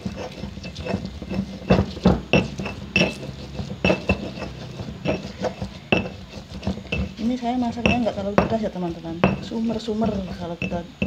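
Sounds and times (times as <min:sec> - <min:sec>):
stone pestle knocking in mortar: 0:00.0 - 0:11.0.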